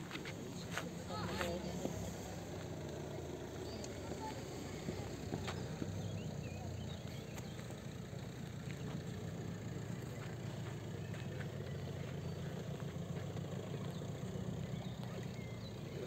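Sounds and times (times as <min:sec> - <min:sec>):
vehicle engine idling: 0:00.0 - 0:16.0.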